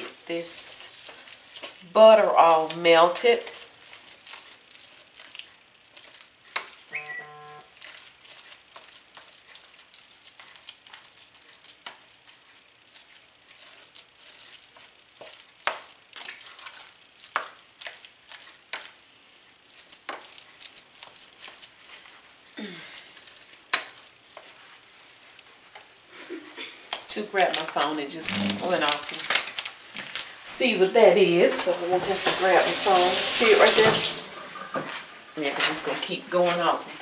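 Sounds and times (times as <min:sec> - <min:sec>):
spatula scraping a pot: 0:00.0 - 0:19.0, 0:28.2 - 0:29.1
butter sizzling: 0:00.0 - 0:37.0
short electronic beep: 0:06.9 - 0:07.7.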